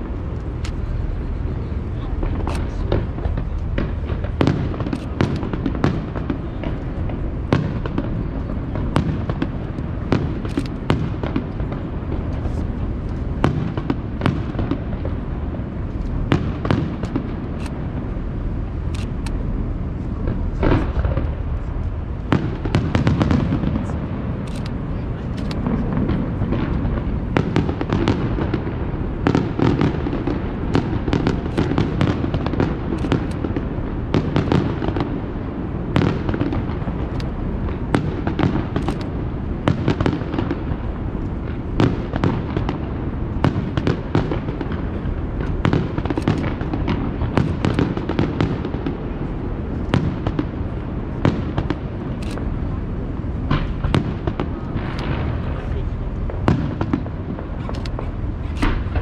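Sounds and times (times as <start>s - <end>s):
low rumble: 0.0s - 34.2s
firework shells bursting: 2.2s - 18.1s, 20.2s - 52.6s, 53.4s - 59.0s.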